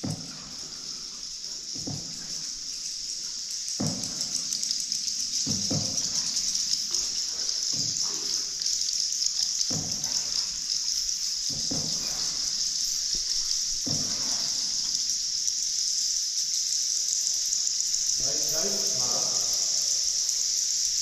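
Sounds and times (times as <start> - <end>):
steady high-pitched hiss: 0.0 - 21.0
paddle strokes in water: 5.3 - 8.7, 9.6 - 15.0.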